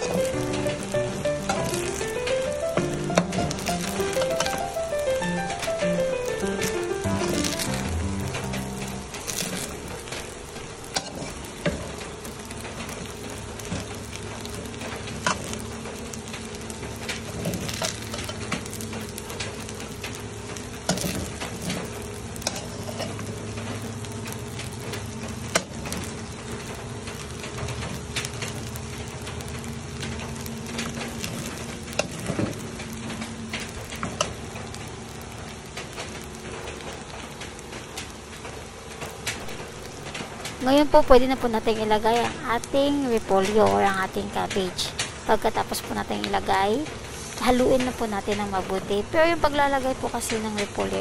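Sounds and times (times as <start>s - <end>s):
low hum: 0.0s - 37.3s
rice sizzling in wok: 0.0s - 51.0s
metal spatula scraping wok: 10.9s - 11.4s, 22.4s - 23.2s.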